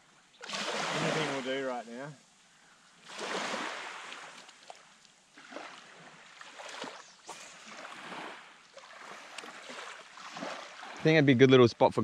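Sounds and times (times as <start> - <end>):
small waves lapping on sand: 0.4 - 2.2, 2.9 - 11.5.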